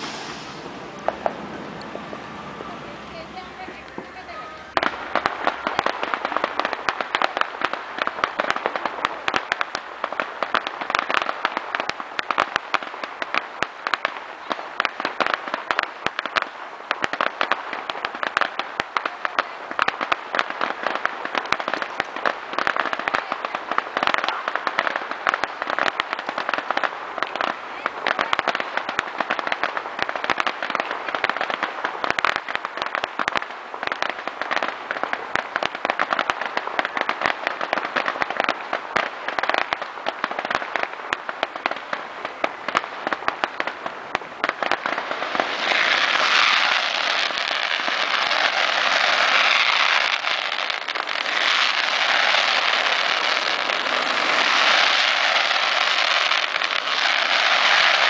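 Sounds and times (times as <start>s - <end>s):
fireworks crackling: 0.0s - 58.0s.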